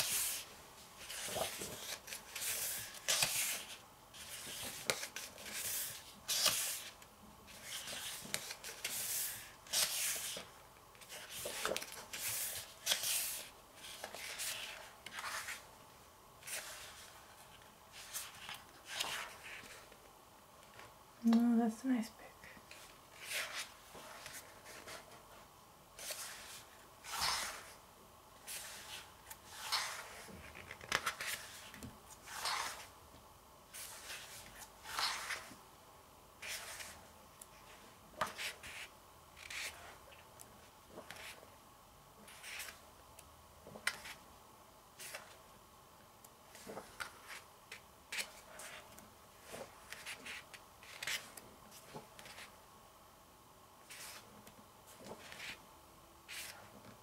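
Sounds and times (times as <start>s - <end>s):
glossy pages turning: 1.0s - 15.6s, 26.0s - 27.7s, 28.5s - 32.9s, 33.7s - 35.6s, 46.5s - 52.5s.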